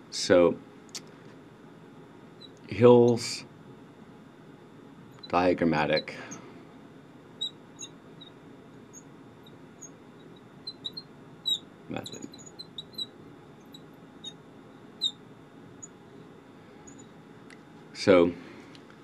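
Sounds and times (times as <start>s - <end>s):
marker squeaking on glass: 7.4s - 14.4s, 15.0s - 15.2s, 16.9s - 17.1s.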